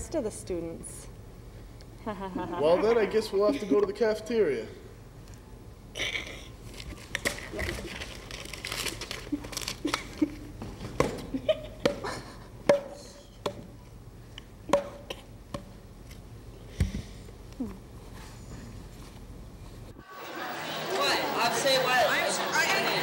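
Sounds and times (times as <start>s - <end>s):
paper rustling: 6.7s - 10.4s.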